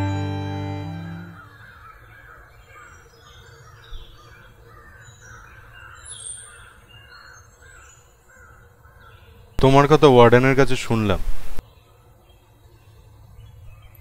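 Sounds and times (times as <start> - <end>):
birds calling: 0.0 - 9.9.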